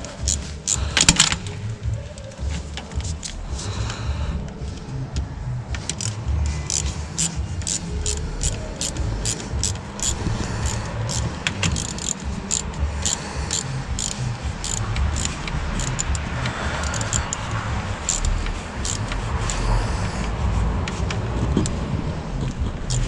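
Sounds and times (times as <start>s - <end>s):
ratchet wrench clicking: 0.0s - 1.6s, 5.8s - 20.3s
low rumble: 0.0s - 23.0s.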